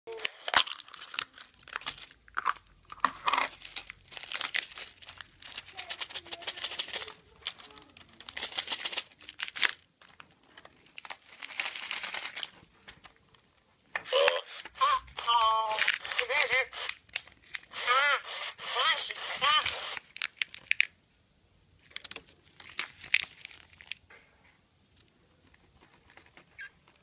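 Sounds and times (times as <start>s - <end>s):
foil wrapper crinkling and tearing: 0.1s - 13.0s, 14.1s - 17.8s, 18.8s - 21.0s, 21.8s - 24.0s.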